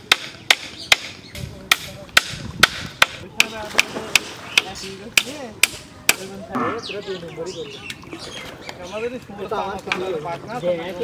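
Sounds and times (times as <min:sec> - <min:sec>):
hand tool striking bamboo: 0:00.0 - 0:06.3.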